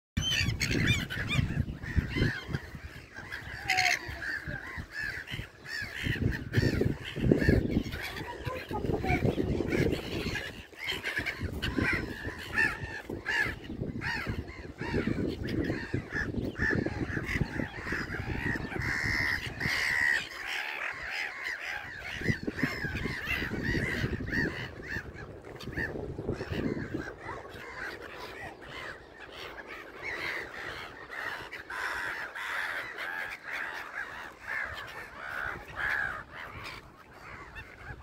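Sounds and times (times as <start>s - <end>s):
gulls calling: 0.2s - 38.0s.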